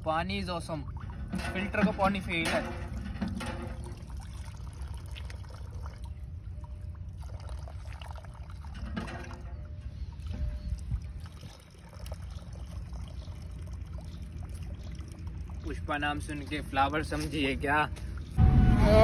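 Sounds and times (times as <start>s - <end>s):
water splashing from pump spout: 0.0s - 17.4s
steady low rumble: 13.4s - 19.0s.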